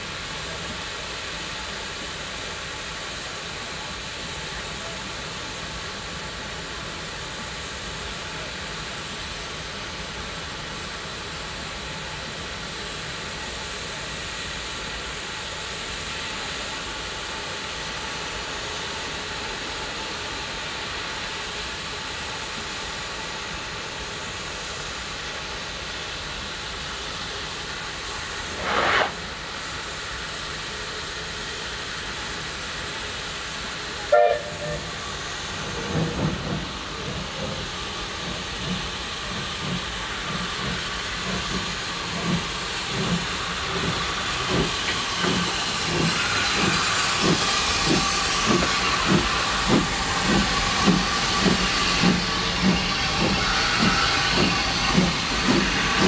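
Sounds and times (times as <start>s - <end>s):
steam locomotive hissing: 0.0s - 56.0s
locomotive whistle: 34.0s - 35.0s.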